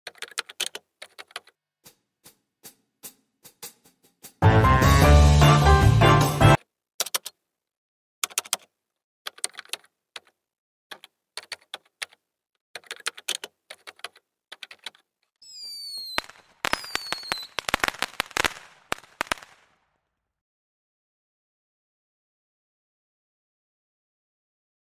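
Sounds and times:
keyboard typing clicks: 0.1s - 1.6s, 7.0s - 7.4s, 8.2s - 8.7s, 9.3s - 12.2s, 12.8s - 15.0s
falling whistles: 15.4s - 18.1s
firework pops and crackles: 15.5s - 19.8s.

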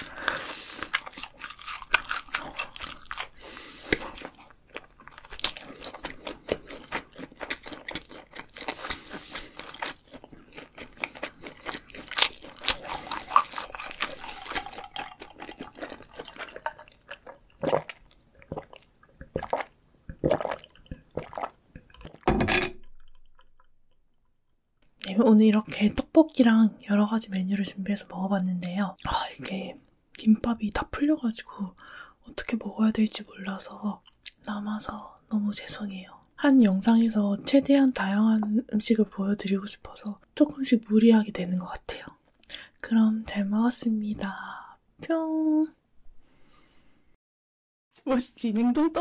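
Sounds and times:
crunching fried food: 0.0s - 18.8s
wet chewing: 0.0s - 22.2s
gulping water: 13.8s - 22.3s
swallowing: 13.9s - 22.2s.

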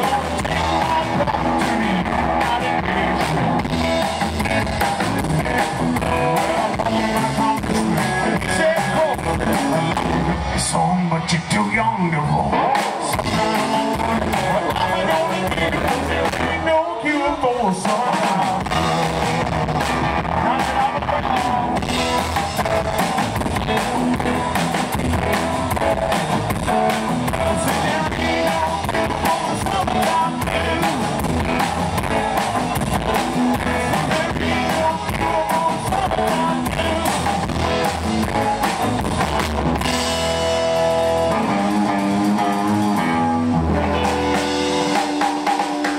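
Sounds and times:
person singing: 0.0s - 39.8s
rockabilly band playing: 0.0s - 45.9s.

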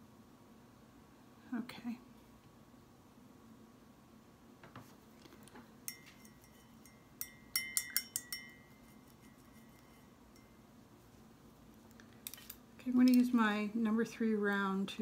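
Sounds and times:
paintbrush clinking on glass jar: 5.8s - 10.7s.

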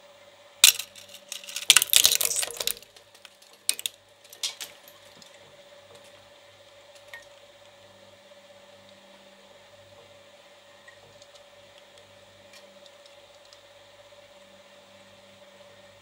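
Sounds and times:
shredder crunching metal toy: 0.6s - 2.8s.

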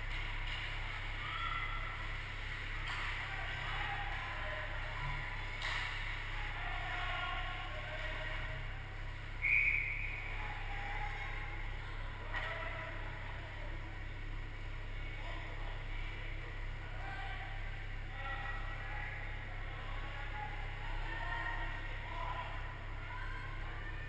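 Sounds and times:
steady low hum: 0.0s - 24.0s
faint distant shouts: 1.1s - 2.2s, 15.0s - 24.0s.

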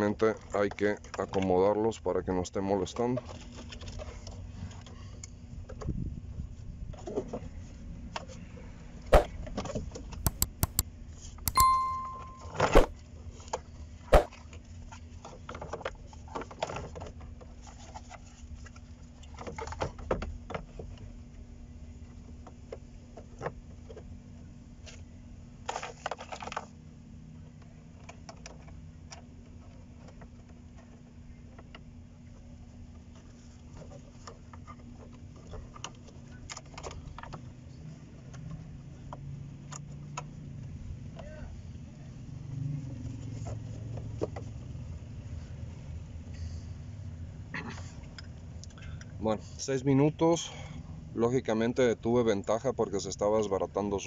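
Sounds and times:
short ding: 11.5s - 12.9s.

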